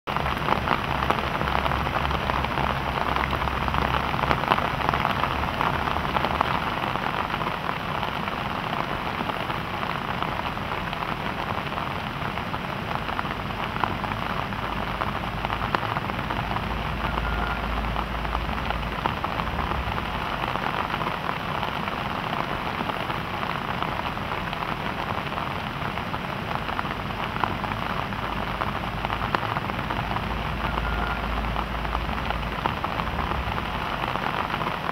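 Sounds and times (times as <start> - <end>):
rain falling on leaves: 0.1 - 34.9.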